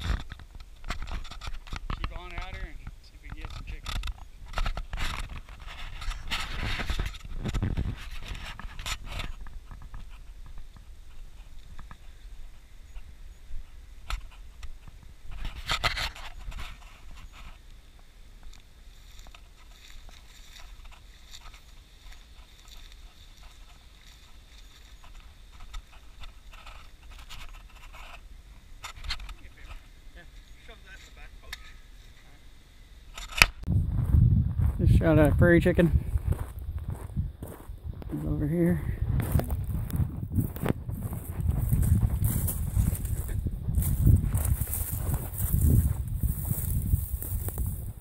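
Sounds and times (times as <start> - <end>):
low wind rumble on microphone: 0.0 - 16.9, 33.4 - 48.0
footsteps on dirt: 18.9 - 28.2, 33.6 - 48.0
clothing rubbing on camera: 39.2 - 48.0.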